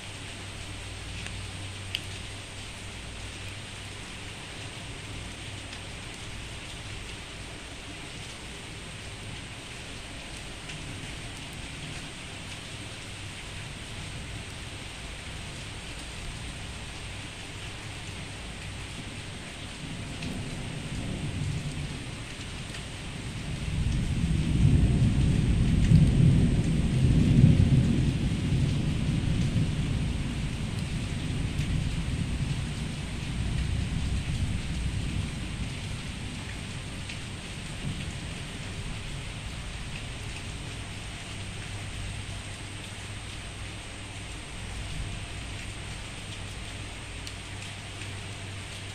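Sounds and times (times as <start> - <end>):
rain falling: 0.0 - 48.9
rolling thunder: 23.2 - 39.8.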